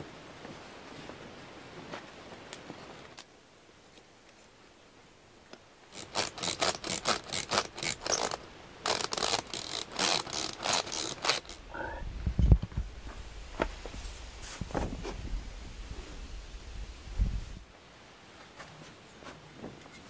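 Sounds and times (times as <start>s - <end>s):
ratchet tool rasping clicks: 6.0s - 11.6s.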